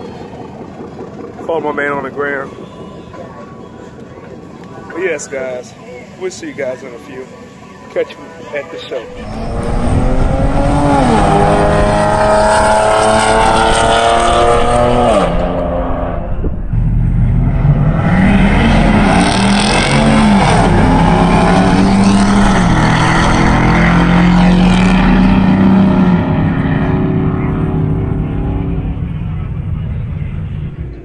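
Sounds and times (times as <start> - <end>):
pickup truck engines racing: 0.0 - 31.0
car accelerating: 9.0 - 31.0.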